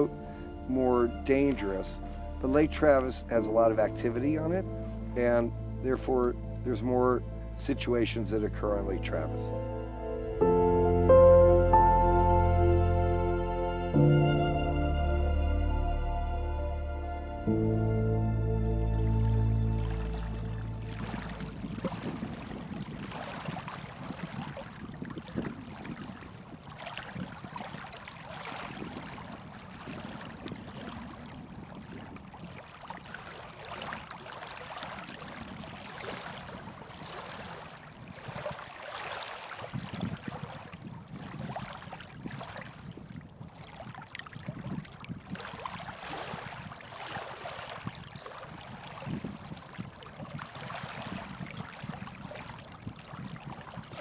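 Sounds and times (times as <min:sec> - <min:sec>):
water lapping against rocks: 0:19.9 - 0:54.0.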